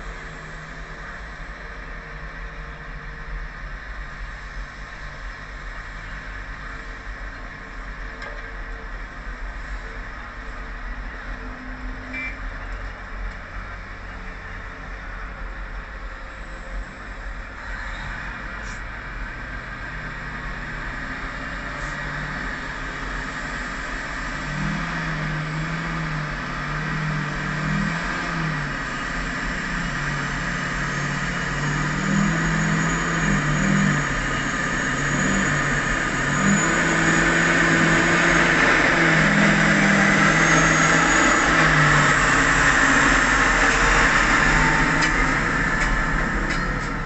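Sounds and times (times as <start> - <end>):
excavator diesel engine running: 0.0 - 47.0
haul truck diesel engine: 0.0 - 47.0.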